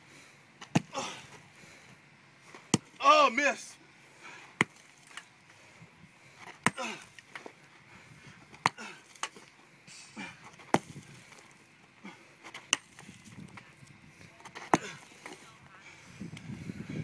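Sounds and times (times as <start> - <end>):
sledgehammer striking rocks: 0.6 - 1.0, 2.7 - 3.0, 4.6 - 5.2, 6.4 - 7.1, 8.6 - 9.4, 10.1 - 11.1, 12.5 - 13.3, 14.6 - 15.1.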